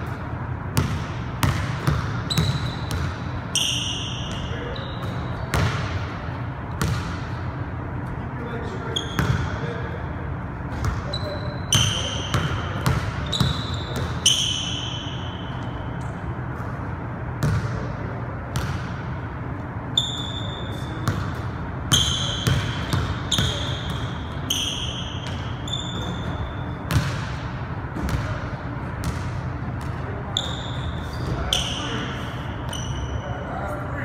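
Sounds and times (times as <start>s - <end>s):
sneaker squeaks: 0.0s - 7.4s, 8.0s - 16.8s, 19.6s - 28.4s, 29.0s - 33.8s
basketball bouncing on wooden floor: 0.8s - 3.1s, 25.2s - 27.3s.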